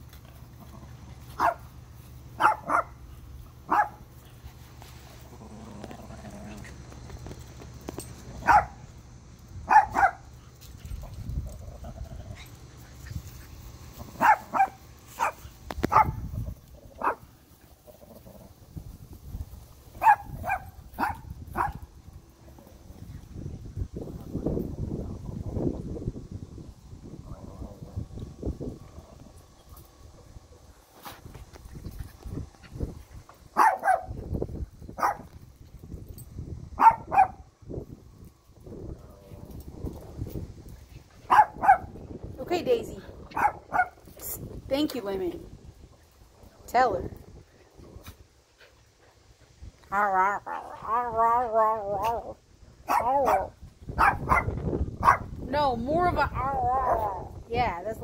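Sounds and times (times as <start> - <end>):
small dogs barking: 0.7 - 4.2, 8.4 - 8.9, 9.6 - 10.3, 14.0 - 16.3, 16.9 - 17.3, 20.0 - 21.9, 33.5 - 34.2, 35.0 - 35.3, 36.8 - 37.5, 41.2 - 42.0, 43.3 - 44.0, 49.9 - 55.4, 56.3 - 57.3.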